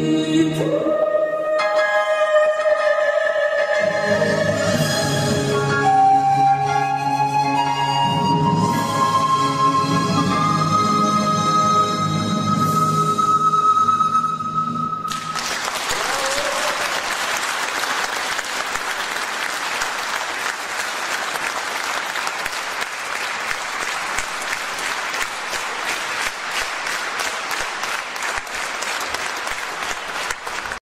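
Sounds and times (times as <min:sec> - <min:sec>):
pan flute note: 0:00.6 - 0:16.8
audience applauding: 0:15.1 - 0:30.8.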